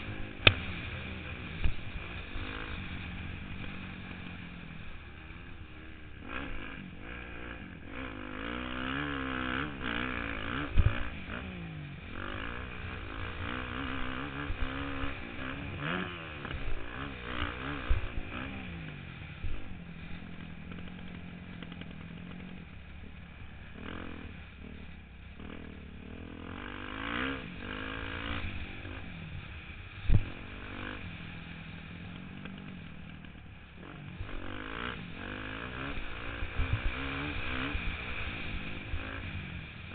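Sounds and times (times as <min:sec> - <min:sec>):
dirt bike engine revving: 0:00.0 - 0:39.9
sharp thumps: 0:00.4 - 0:00.8.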